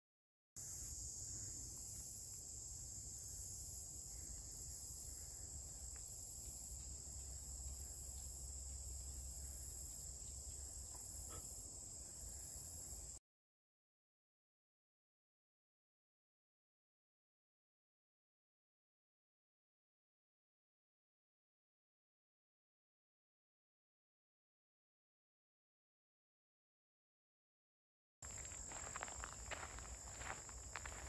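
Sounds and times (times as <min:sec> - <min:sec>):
insects chorus: 0:00.6 - 0:13.2, 0:28.2 - 0:31.0.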